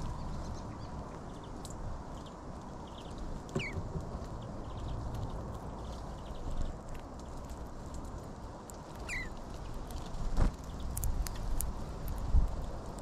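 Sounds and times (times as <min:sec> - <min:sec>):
outdoor background noise: 0:00.0 - 0:13.0
birds pecking clicks: 0:01.1 - 0:13.0.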